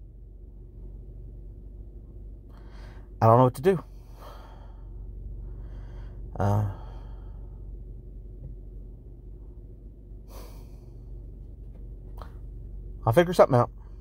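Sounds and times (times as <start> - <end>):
steady low hum: 0.0 - 14.0
man sighing: 5.7 - 7.6, 10.3 - 11.0.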